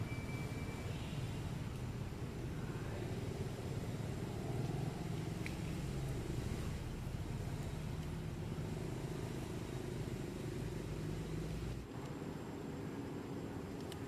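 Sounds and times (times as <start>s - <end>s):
faint high chirp: 0.0s - 1.6s
vehicle engine rumbling: 0.0s - 12.6s.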